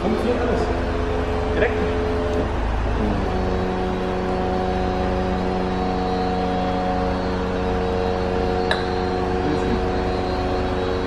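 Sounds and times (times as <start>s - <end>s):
electric roof motor hum: 0.0s - 11.0s.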